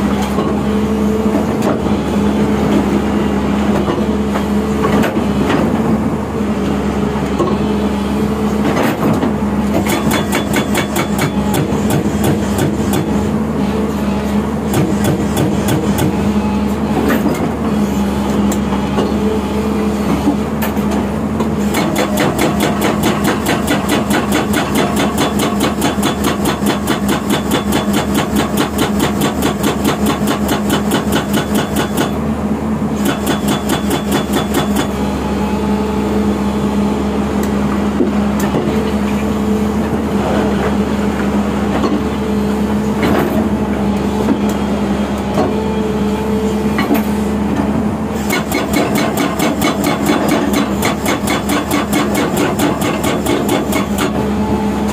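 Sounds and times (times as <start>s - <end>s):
diesel engine running: 0.0s - 54.9s
hydraulic breaker hammering rock: 8.7s - 13.3s, 14.7s - 16.2s, 21.5s - 32.2s, 33.0s - 35.0s, 48.2s - 54.4s.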